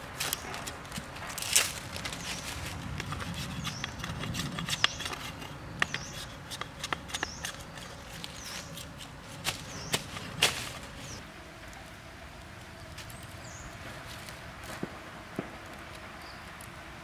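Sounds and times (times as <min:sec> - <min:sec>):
hatchet chopping bamboo: 0:03.0 - 0:10.8.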